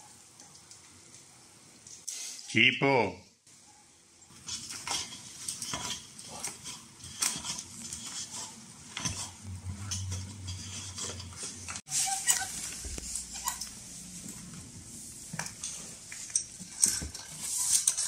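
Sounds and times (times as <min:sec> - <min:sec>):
screwdriver clicking and scraping: 0:15.4 - 0:18.0.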